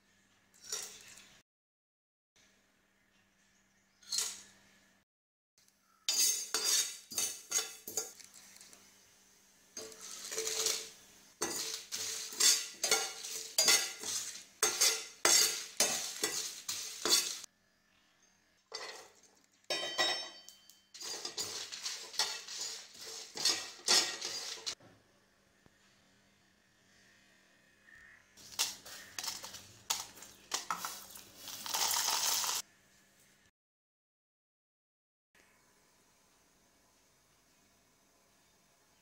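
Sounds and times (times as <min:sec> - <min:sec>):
metal spoon scraping a pan: 0:00.6 - 0:01.3, 0:04.0 - 0:04.5, 0:06.1 - 0:08.7, 0:09.8 - 0:17.5, 0:18.7 - 0:24.8, 0:28.4 - 0:32.6
seeds rattling against a pan: 0:09.8 - 0:17.5, 0:21.0 - 0:24.8, 0:28.4 - 0:32.6.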